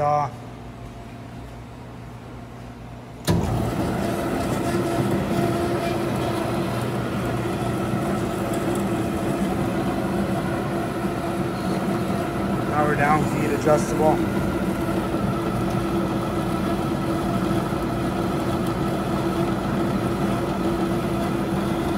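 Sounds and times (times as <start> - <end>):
coolant hiss: 7.1 - 15.3.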